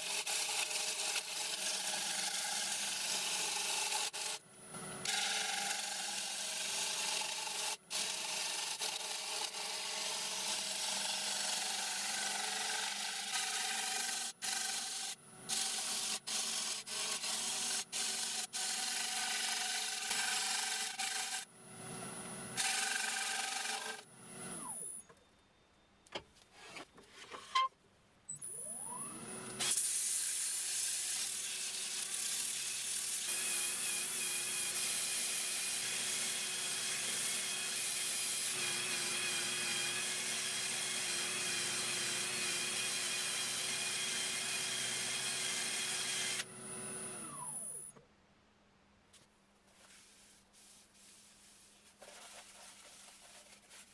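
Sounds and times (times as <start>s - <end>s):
wood lathe spinning: 0.0s - 4.4s, 5.0s - 21.5s, 22.6s - 24.6s, 29.1s - 46.5s
tool cutting wood: 0.0s - 21.5s, 22.5s - 25.0s, 28.4s - 48.0s
sanding pad hissing and whining: 49.8s - 53.9s.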